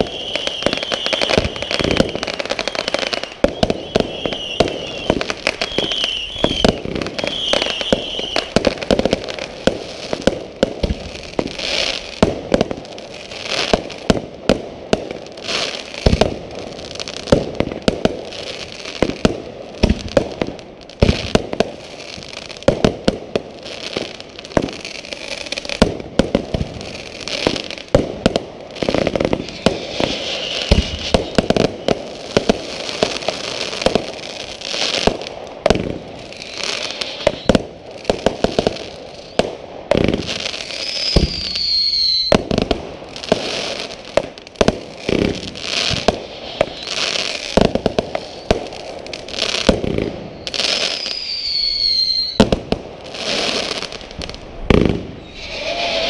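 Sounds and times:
firework whistles: 0.0s - 9.1s, 28.8s - 44.1s, 44.9s - 56.0s
fireworks bangs and crackling: 0.0s - 56.0s.

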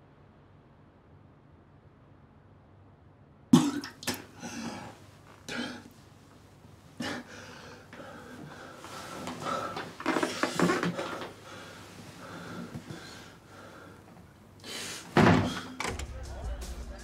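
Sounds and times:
man coughing and gagging: 3.6s - 4.9s.

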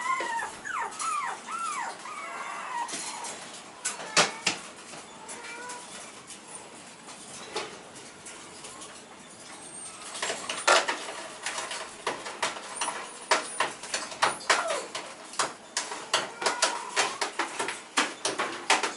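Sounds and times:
puppy whining: 0.0s - 4.5s, 9.5s - 10.7s, 12.8s - 15.1s, 15.7s - 17.6s.

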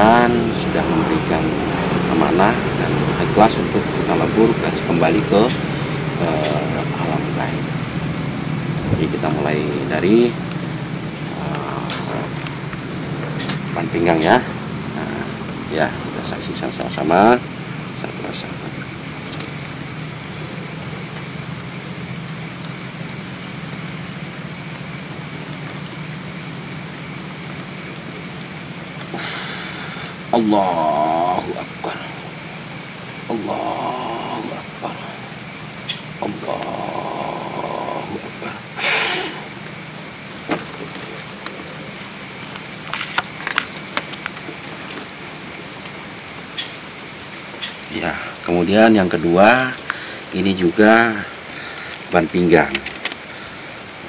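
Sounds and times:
insects trilling: 0.0s - 54.0s
steady low hum: 0.0s - 54.0s.

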